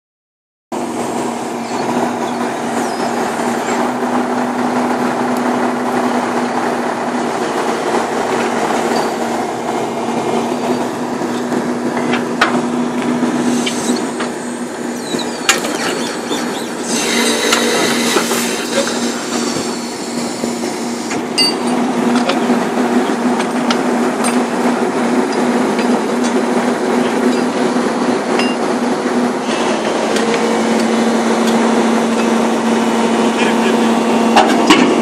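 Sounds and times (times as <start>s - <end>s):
piling rig engine humming: 0.7s - 35.0s.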